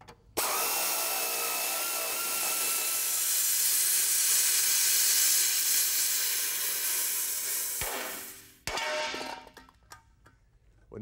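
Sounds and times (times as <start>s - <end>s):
cutting torch hissing: 0.4s - 8.6s.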